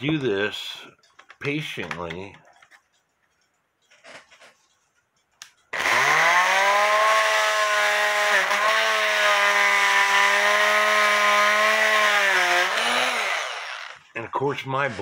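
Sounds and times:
oscillating multi-tool buzzing: 5.7s - 14.0s.

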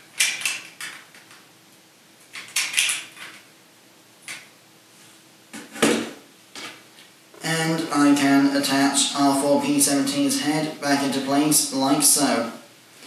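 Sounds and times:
plastic toy bricks clicking: 0.2s - 1.4s.

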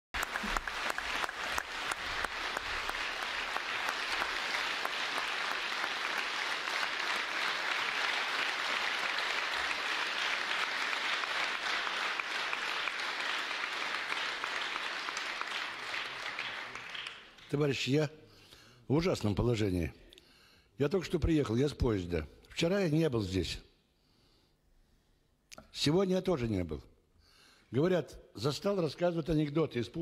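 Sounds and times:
audience applauding: 0.1s - 17.6s.

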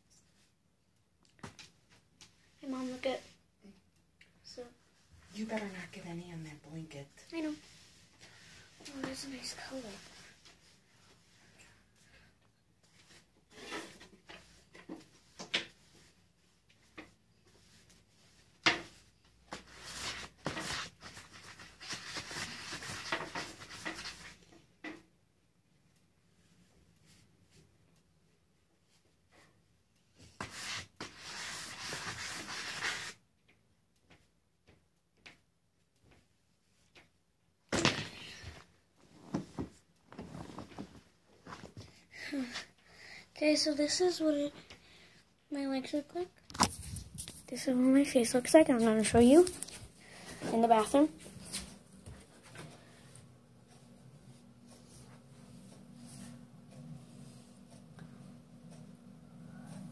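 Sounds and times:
rustling and scraping: 12.8s - 24.7s, 37.8s - 42.8s, 46.5s - 59.0s.

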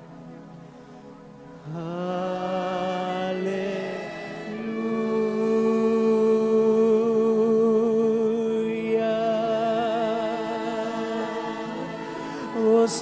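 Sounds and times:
sustained music accompaniment: 0.0s - 13.0s
person singing long note: 1.6s - 13.0s.

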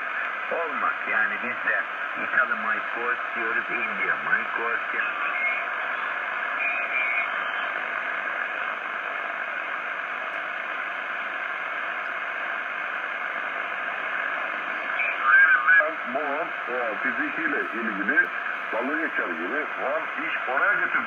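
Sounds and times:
radio band noise hissing: 0.0s - 21.0s
faint radio whistle: 5.0s - 8.4s.

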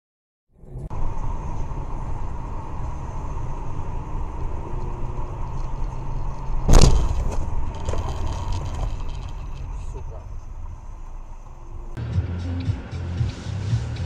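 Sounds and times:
car road and engine rumble: 0.5s - 14.0s
loud thump: 6.7s - 7.6s.

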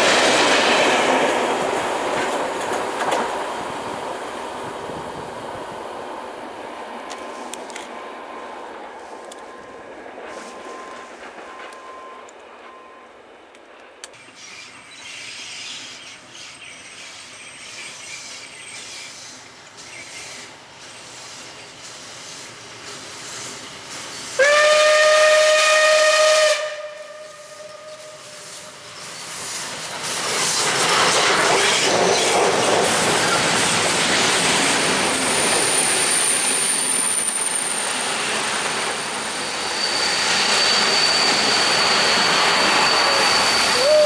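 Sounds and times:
train wheels on rails: 0.0s - 44.0s
steam locomotive whistle: 24.4s - 28.8s, 39.4s - 44.0s
wheels squealing: 27.9s - 44.0s.

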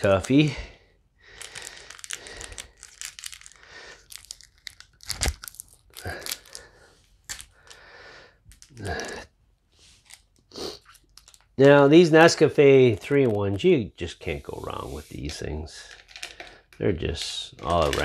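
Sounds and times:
packaging crinkling and tearing: 0.0s - 0.5s, 1.4s - 7.8s, 10.0s - 13.6s.

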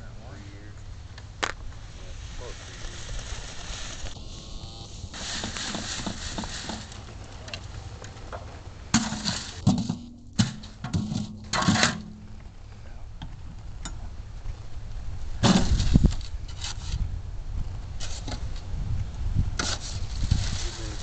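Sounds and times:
low wind rumble: 0.0s - 9.0s, 11.4s - 21.0s
hand tools clanking and scraping: 5.1s - 12.3s, 15.4s - 17.0s, 19.6s - 21.0s.

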